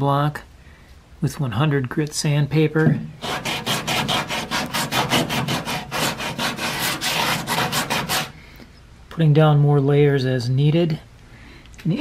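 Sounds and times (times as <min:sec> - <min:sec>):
sandpaper scraping filler: 0:03.2 - 0:08.4.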